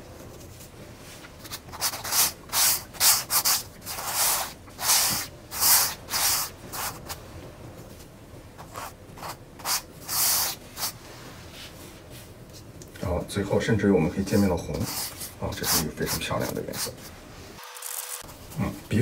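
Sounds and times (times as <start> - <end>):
paintbrush scrubbing canvas: 1.0 - 7.2, 8.6 - 12.2, 14.3 - 17.2.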